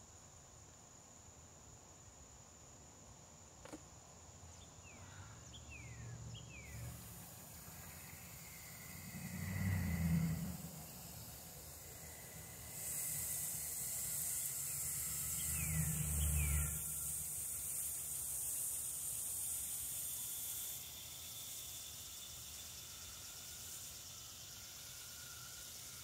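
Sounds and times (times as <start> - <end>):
hose spray hissing on soil: 6.6 - 26.0.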